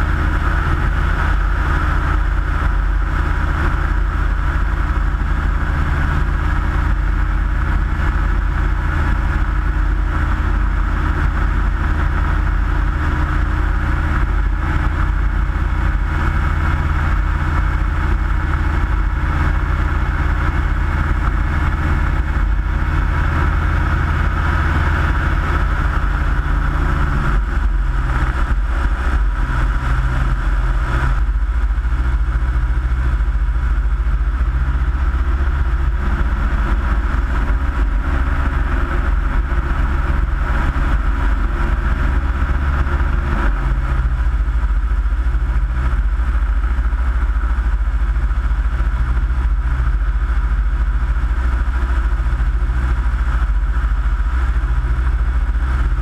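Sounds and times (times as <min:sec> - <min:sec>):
aircraft engine and propeller droning: 0:00.0 - 0:56.0
wind noise rumble: 0:00.0 - 0:56.0.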